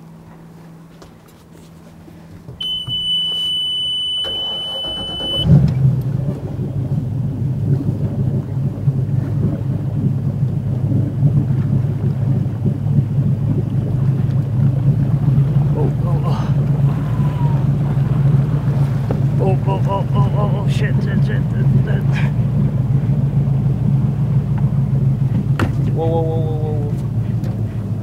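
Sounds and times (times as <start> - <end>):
boat engine running: 0.0 - 28.0
high electronic beep: 2.6 - 5.5
starter cranking: 4.2 - 5.8.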